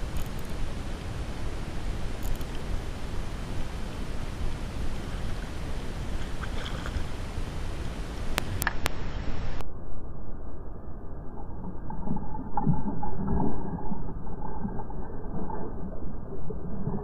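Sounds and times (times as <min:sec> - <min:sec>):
water noise: 0:00.0 - 0:17.0.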